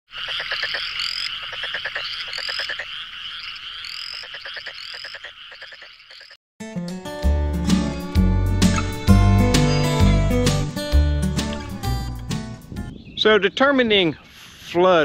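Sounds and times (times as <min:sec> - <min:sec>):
frogs trilling: 0:00.1 - 0:06.4
rapid pulsed frog croaks: 0:00.1 - 0:06.4
rising frog peep: 0:00.1 - 0:06.4.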